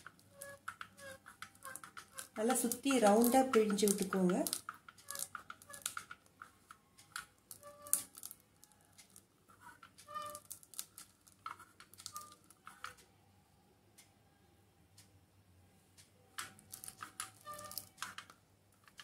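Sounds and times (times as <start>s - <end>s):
press squeaking: 0.0s - 4.1s, 5.0s - 6.1s, 7.6s - 8.8s, 9.6s - 10.5s, 16.9s - 18.2s.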